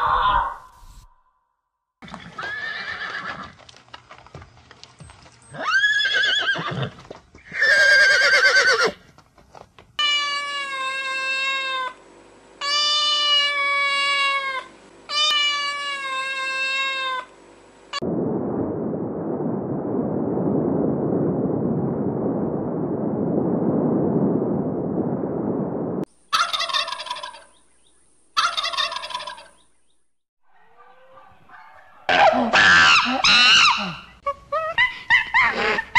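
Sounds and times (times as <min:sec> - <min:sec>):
horse whinnying: 0:02.0 - 0:03.6, 0:05.5 - 0:09.0.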